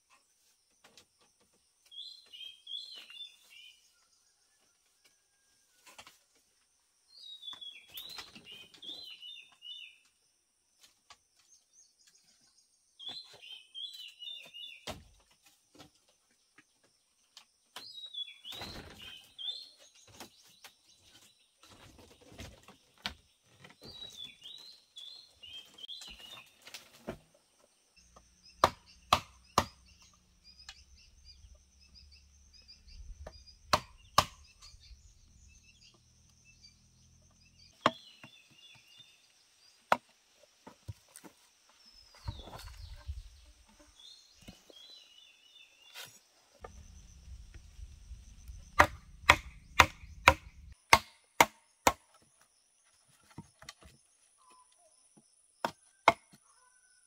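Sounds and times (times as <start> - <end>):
small birds chirping: 0.1 - 4.1, 7.1 - 10.2, 11.4 - 50.9
knife striking bamboo: 28.6 - 29.8, 33.2 - 34.6, 48.7 - 52.1.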